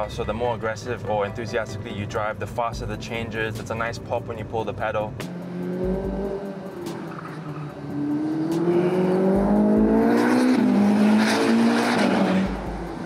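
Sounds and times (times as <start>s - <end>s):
gear shift pitch drop: 5.2s - 13.0s
sports car engine accelerating: 5.2s - 13.0s.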